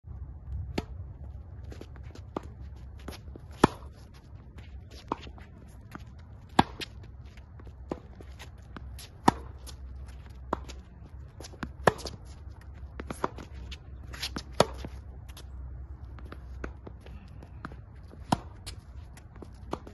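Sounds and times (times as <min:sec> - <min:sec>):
footsteps on court: 0:00.7 - 0:19.9
racket striking tennis ball: 0:02.2 - 0:04.2, 0:06.0 - 0:07.0, 0:07.8 - 0:10.8, 0:11.4 - 0:12.4, 0:13.0 - 0:15.4, 0:17.6 - 0:18.8
ball bounces: 0:05.9 - 0:07.0, 0:07.7 - 0:15.0.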